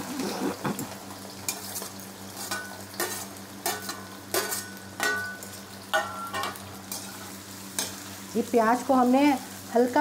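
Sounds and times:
onions sizzling in hot oil: 0.8 - 10.0
metal ladle scraping a pan: 1.5 - 5.2.

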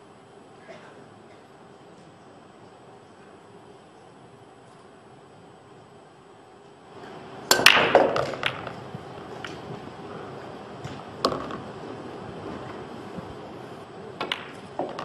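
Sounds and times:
billiard balls clacking: 7.0 - 13.4, 14.2 - 15.0
cue ball smashing into rack: 7.5 - 8.8, 11.2 - 11.7, 14.2 - 15.0
balls clicking on cushions: 10.8 - 11.8, 14.2 - 15.0.

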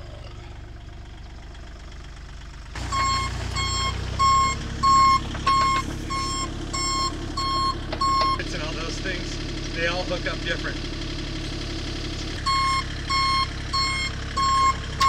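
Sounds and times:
excavator diesel engine: 0.0 - 15.0
backup alarm beeping: 2.8 - 8.4, 12.4 - 14.8.

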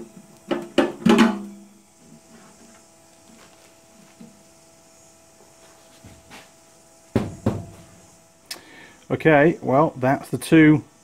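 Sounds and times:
faint steady hum: 0.0 - 11.0
sharp knocks on workbench: 7.1 - 8.0.

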